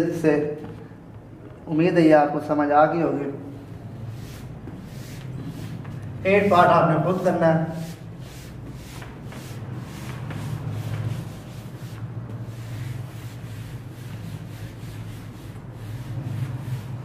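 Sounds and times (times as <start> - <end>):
steady low hum: 3.0 - 17.0
soft rubbing and scuffing: 3.4 - 17.0.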